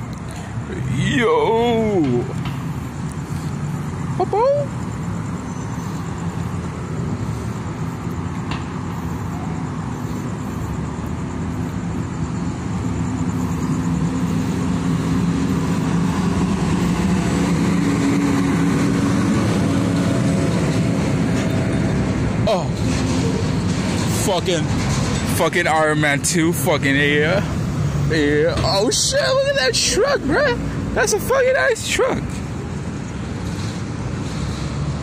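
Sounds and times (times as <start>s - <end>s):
traffic noise: 0.0s - 35.0s
heavy truck driving past: 4.9s - 29.1s, 32.3s - 35.0s.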